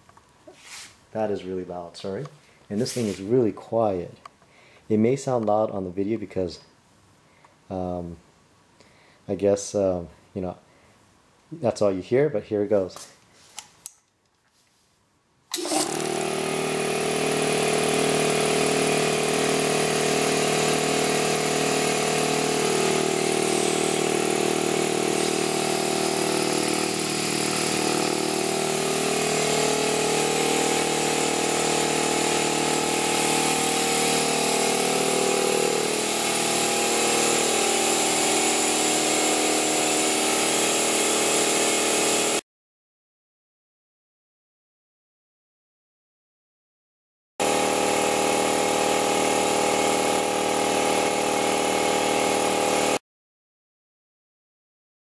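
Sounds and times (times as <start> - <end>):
air compressor running: 15.5 - 42.4, 47.4 - 53.0.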